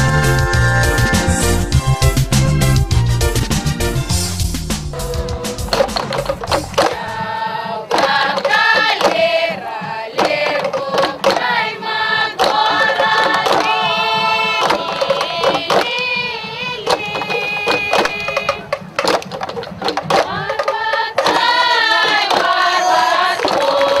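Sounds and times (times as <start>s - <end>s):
sharp percussive beats: 0.0s - 24.0s
women singing together: 5.1s - 18.7s, 19.9s - 24.0s.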